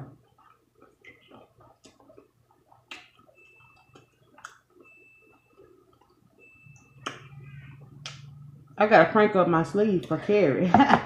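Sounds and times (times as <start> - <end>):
gulps and swallows: 0.0 - 8.7.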